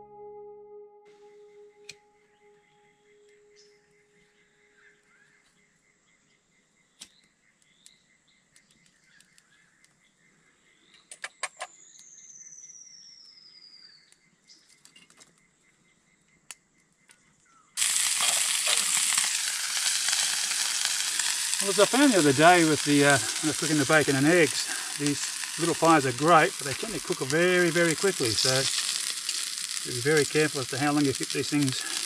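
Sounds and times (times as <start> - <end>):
meat sizzling in a hot pan: 17.8 - 32.0.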